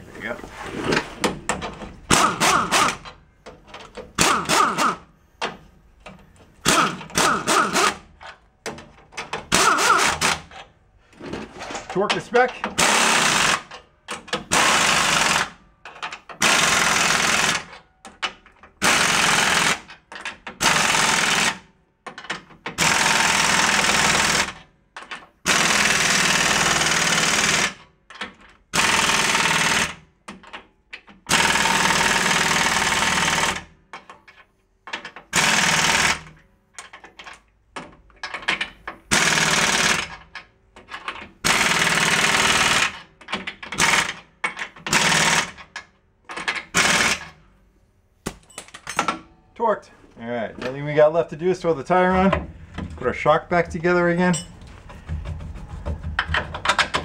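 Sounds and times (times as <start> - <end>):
pneumatic impact wrench hammering: 1.2 - 10.7, 12.6 - 33.7, 35.0 - 36.4, 37.8 - 47.4, 54.9 - 57.0.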